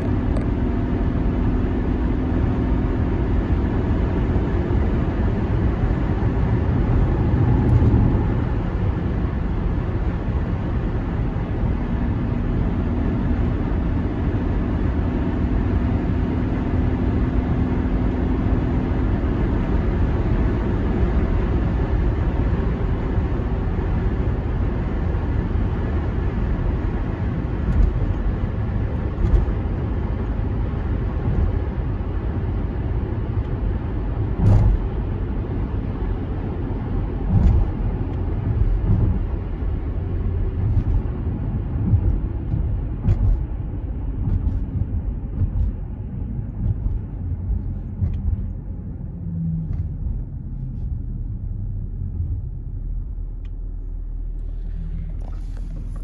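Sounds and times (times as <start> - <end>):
tyre and wind noise: 33.0 - 49.0
engine humming at idle: 37.1 - 56.0.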